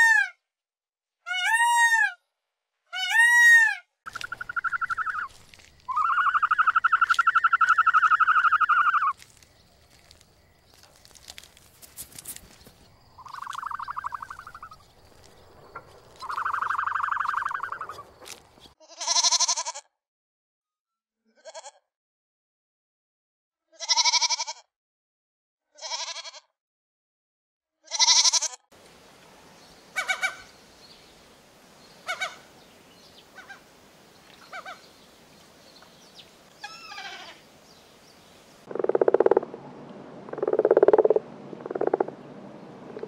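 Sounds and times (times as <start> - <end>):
peacock calling: 2.9 - 9.2, 12.2 - 18.8, 29.8 - 30.7, 31.9 - 35.2, 36.0 - 38.0
goat bleating: 18.8 - 19.9, 23.8 - 24.6, 25.8 - 26.5, 27.9 - 28.6, 36.6 - 37.4.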